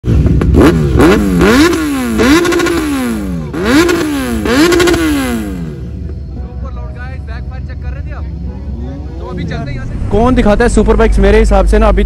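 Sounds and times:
motorcycle engine revving: 0.0 - 6.3, 7.9 - 12.0.

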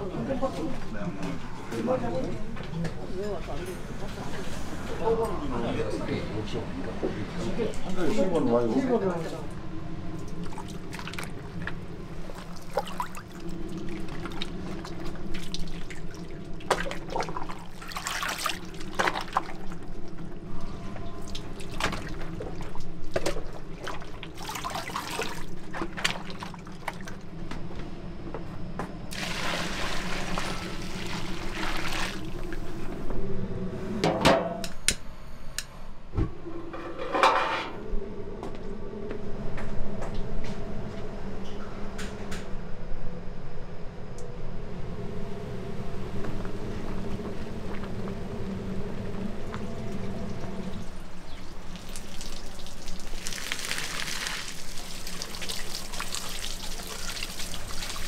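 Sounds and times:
steady low hum: 0.0 - 53.2
water pouring and splashing: 10.2 - 20.1, 21.1 - 27.2, 29.1 - 32.7, 49.9 - 58.0.

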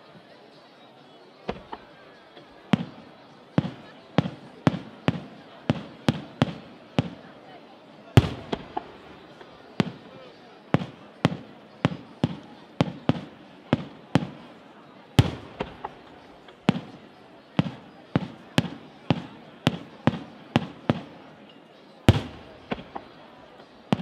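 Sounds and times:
firework shells bursting: 8.2 - 10.0, 15.2 - 17.0, 22.1 - 23.1.

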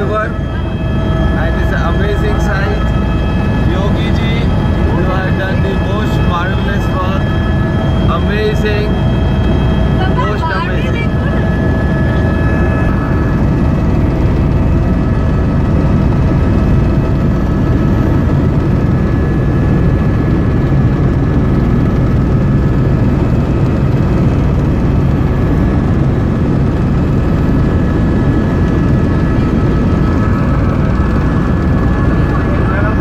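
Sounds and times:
helicopter engine and rotor drone: 0.0 - 33.0
high whine: 0.0 - 33.0.

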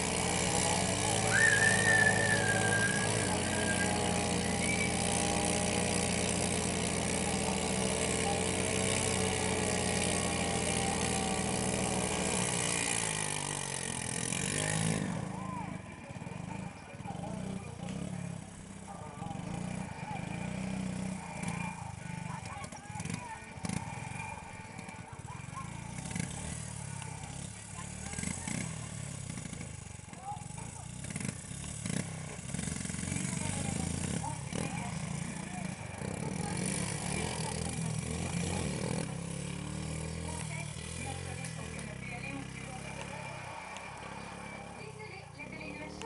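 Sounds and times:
atv engine idling: 0.0 - 46.0.

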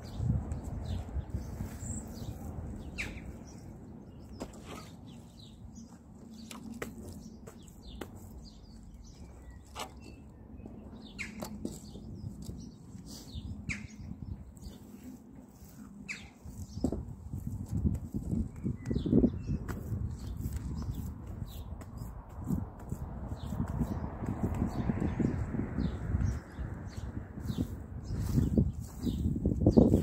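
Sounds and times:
small birds chirping: 0.0 - 30.0
gloved hands working soil: 4.3 - 13.6, 14.4 - 24.9.

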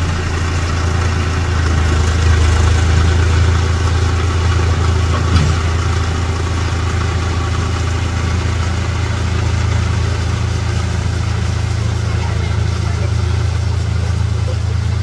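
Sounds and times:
tiller churning mud and water: 0.0 - 15.0
tractor diesel engine running: 0.0 - 15.0
brief knock: 5.2 - 5.6.

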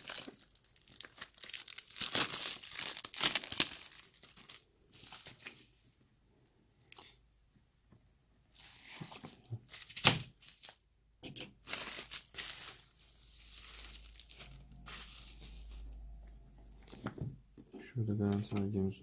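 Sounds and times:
plastic packaging crinkling: 0.0 - 5.6, 8.7 - 10.8, 11.5 - 15.9.

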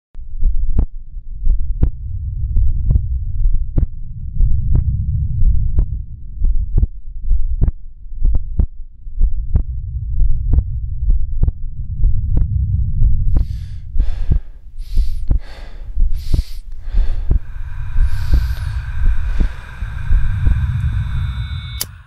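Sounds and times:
deep rumbling hum: 0.2 - 22.0
low heartbeat-like thumps: 0.2 - 22.0
airy whooshing: 16.2 - 22.0.

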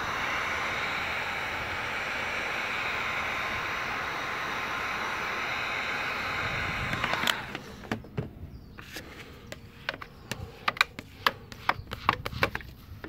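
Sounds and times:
heat gun blowing: 0.0 - 8.2, 8.8 - 13.0.

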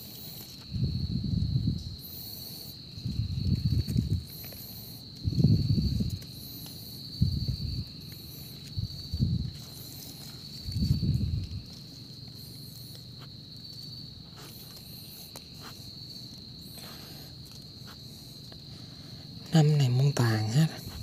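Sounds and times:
insects shrilling: 0.0 - 21.0.

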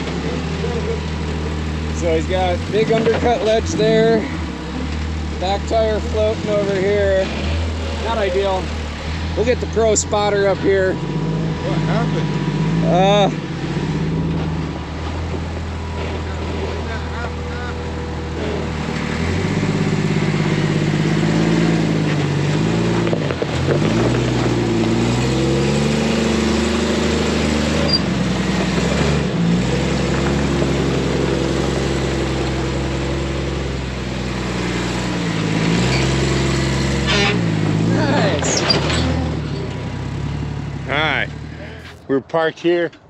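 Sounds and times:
buggy engine revving: 0.0 - 43.0.

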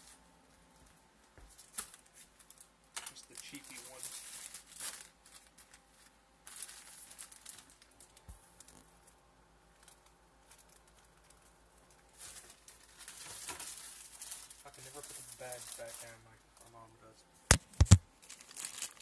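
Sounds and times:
plastic bag crinkling: 1.6 - 8.8, 9.8 - 16.2, 17.5 - 19.0.

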